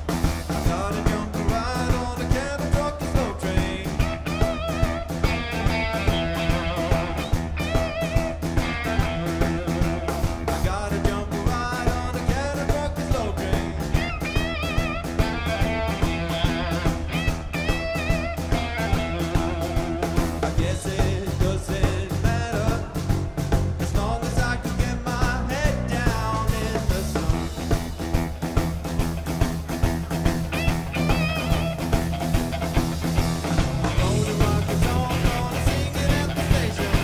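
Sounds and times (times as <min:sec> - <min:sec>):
bass guitar: 0:00.0 - 0:37.0
drum kit steady beat: 0:00.0 - 0:37.0
electric guitar: 0:00.0 - 0:37.0.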